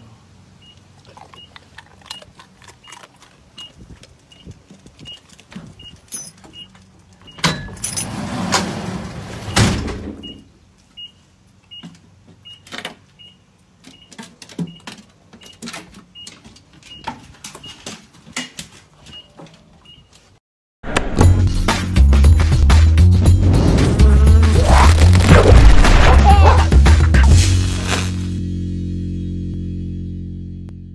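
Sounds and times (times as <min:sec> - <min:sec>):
truck warning chime beeping: 0:00.6 - 0:00.8, 0:03.6 - 0:05.2, 0:05.8 - 0:07.8, 0:09.5 - 0:17.8.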